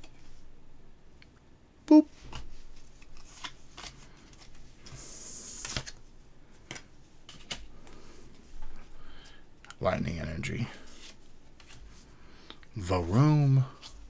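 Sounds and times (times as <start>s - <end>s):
cards sliding and rustling: 2.2s - 9.4s, 10.8s - 12.1s.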